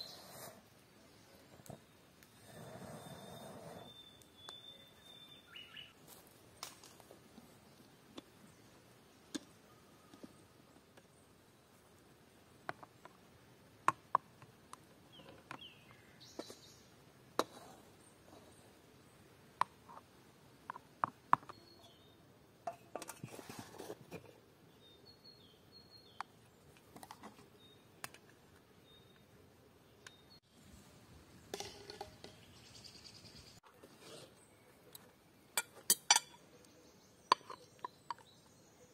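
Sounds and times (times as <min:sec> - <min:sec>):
faint bird chirps: 0:00.0 - 0:06.0, 0:21.4 - 0:22.2.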